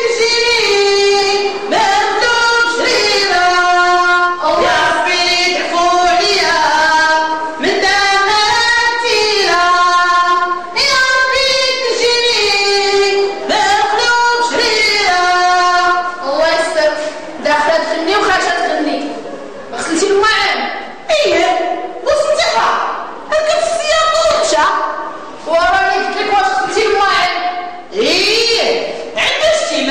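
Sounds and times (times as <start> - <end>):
high solo voice singing: 0.0 - 17.2.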